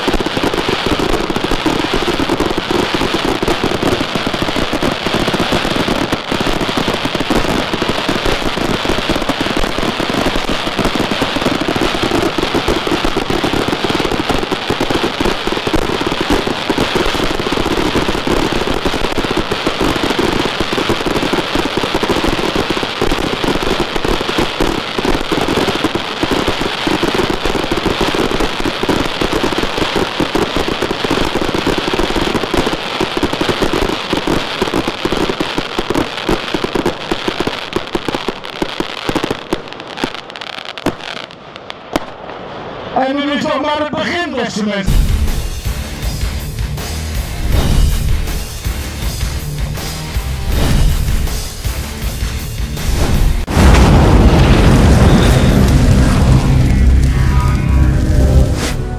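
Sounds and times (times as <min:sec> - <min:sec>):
firework cake salute bangs: 0:47.4 - 0:49.2, 0:50.5 - 0:52.1, 0:52.8 - 0:56.9.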